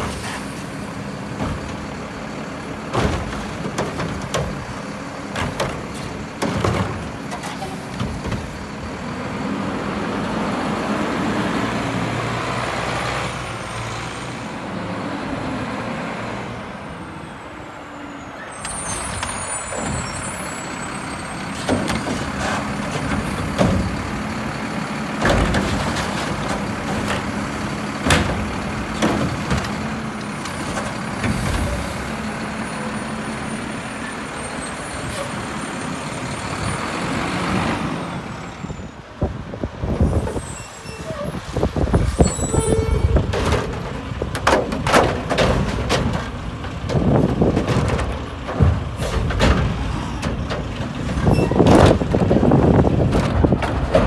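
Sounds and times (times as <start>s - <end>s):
carts clanking and banging: 0.0s - 9.4s, 18.4s - 37.2s, 39.9s - 54.0s
diesel engine running: 0.0s - 54.0s.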